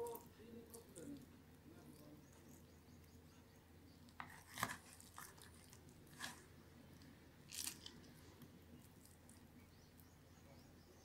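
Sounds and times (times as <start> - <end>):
soap crunching in hands: 7.5 - 8.1.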